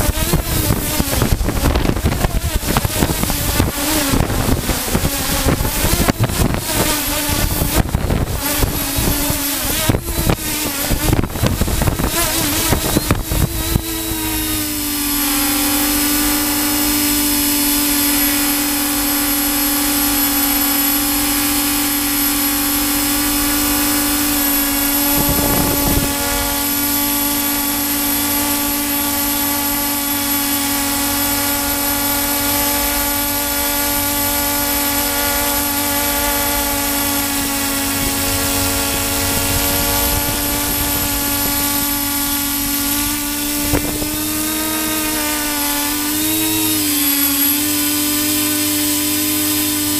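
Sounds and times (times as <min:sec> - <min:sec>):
model aircraft motor drone: 0:00.0 - 0:49.9
rush of noise: 0:21.8 - 0:27.7.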